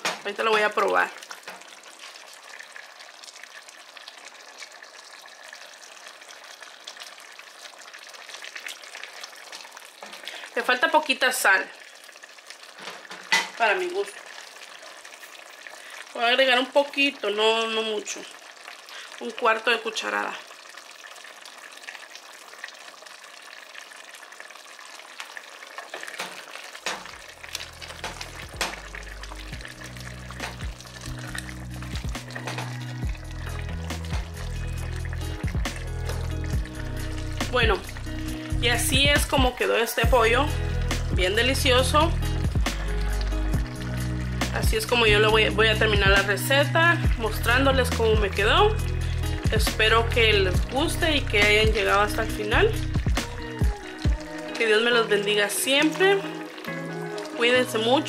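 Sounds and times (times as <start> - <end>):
stew bubbling in a pot: 0.0 - 58.0
background music: 27.0 - 58.0
spoon scraping a pot: 30.3 - 32.8.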